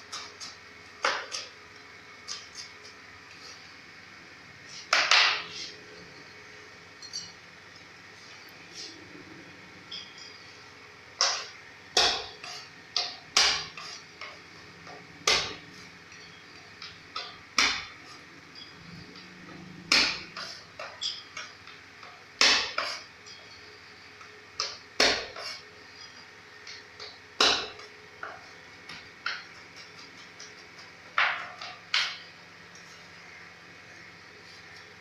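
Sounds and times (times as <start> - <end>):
knife chopping on wooden board: 12.0 - 13.9, 22.4 - 23.0, 24.6 - 25.5.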